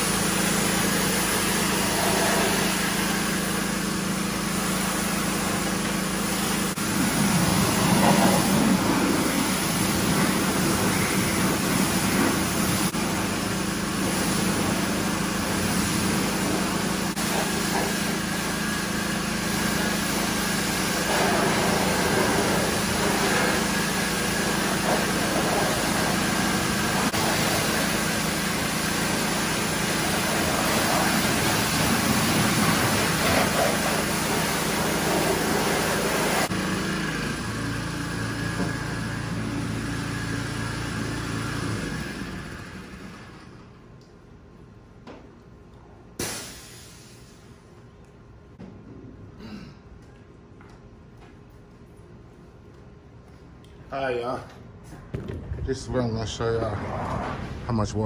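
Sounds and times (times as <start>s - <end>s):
pressure washer water jet hissing: 0.0s - 43.3s
small engine running: 14.7s - 43.7s.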